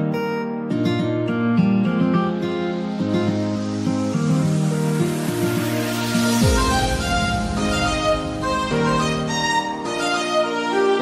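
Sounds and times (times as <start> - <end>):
acoustic guitar music: 0.0 - 11.0.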